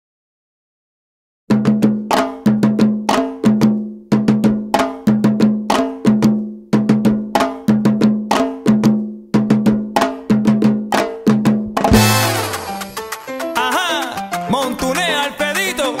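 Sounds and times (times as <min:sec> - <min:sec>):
pitched drum strikes: 0:10.3 - 0:13.5.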